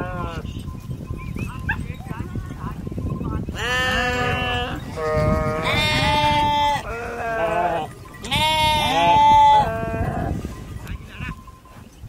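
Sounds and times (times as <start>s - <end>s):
sheep bleating: 3.6s - 10.4s.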